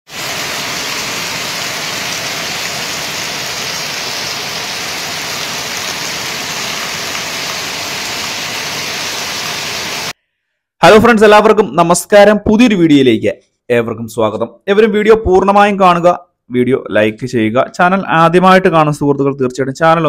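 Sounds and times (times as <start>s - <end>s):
heavy rain falling: 0.0s - 10.1s.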